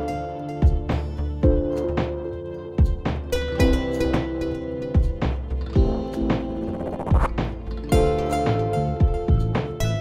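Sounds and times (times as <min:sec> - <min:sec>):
music with held tones: 0:00.0 - 0:10.0
deep regular beat: 0:05.0 - 0:09.5.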